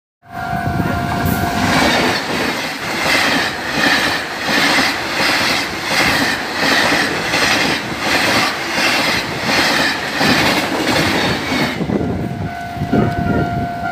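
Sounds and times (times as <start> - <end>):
train horn: 0.2 - 2.0, 11.7 - 13.9
train wheels clattering over rails: 1.2 - 12.1.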